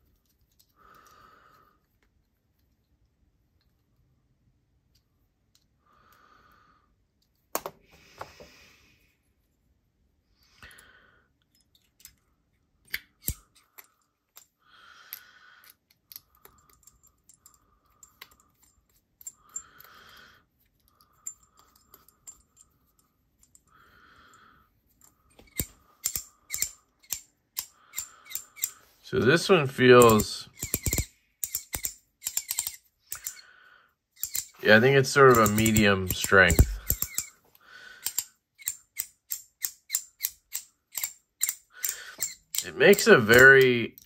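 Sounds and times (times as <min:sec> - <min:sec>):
sharp ratchet clicks: 0:25.5 - 0:28.8, 0:30.0 - 0:33.4, 0:34.2 - 0:34.6, 0:35.2 - 0:37.3, 0:38.0 - 0:43.7
squeak of turning coin: 0:35.2 - 0:37.4, 0:38.6 - 0:43.6.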